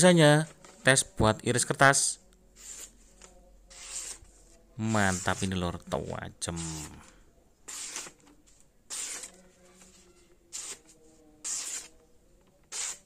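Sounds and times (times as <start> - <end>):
blade slicing through paper: 2.6 - 4.3, 7.7 - 8.3, 8.9 - 12.0, 12.6 - 13.0.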